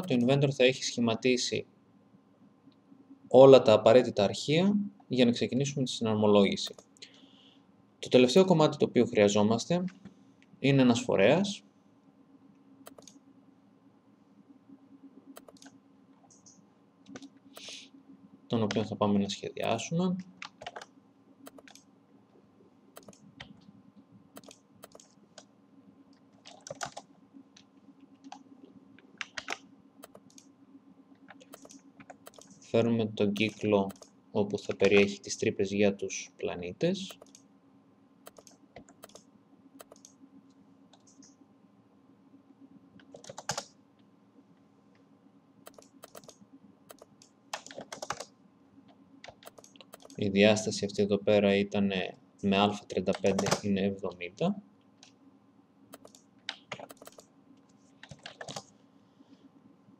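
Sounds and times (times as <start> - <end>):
faint hum: 0.0 - 59.9
computer keyboard typing: 12.9 - 13.2, 15.4 - 15.7, 19.6 - 21.8, 23.0 - 23.5, 24.4 - 25.5, 26.4 - 27.1, 29.2 - 30.5, 31.3 - 32.6, 33.4 - 34.1, 37.1 - 37.4, 38.3 - 39.2, 39.8 - 40.1, 43.1 - 43.7, 45.6 - 48.3, 49.2 - 50.2, 55.9 - 57.3, 58.0 - 58.7
keyboard keys clicking: 23.0 - 23.5, 31.3 - 32.6, 38.3 - 39.2, 45.7 - 48.3, 49.2 - 50.2, 55.9 - 57.2.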